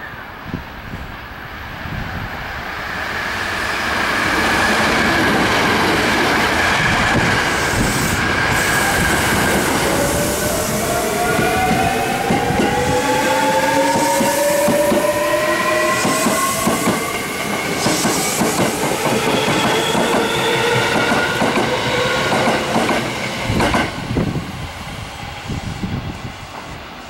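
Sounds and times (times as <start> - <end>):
train wheels clattering on rails: 13.6 - 24.1.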